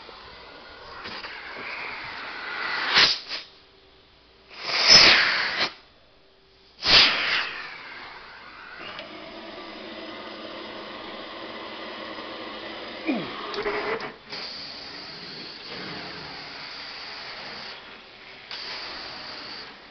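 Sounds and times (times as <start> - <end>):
vacuum hose sucking air: 0.0 - 3.6, 4.5 - 5.8, 6.8 - 19.9
machine hum: 7.5 - 19.9.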